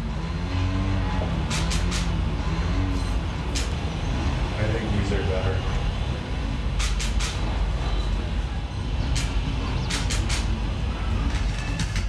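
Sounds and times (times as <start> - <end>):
steady low rumble: 0.0 - 12.0
sharp hissing clicks: 1.5 - 2.1, 6.8 - 7.4, 9.1 - 10.5.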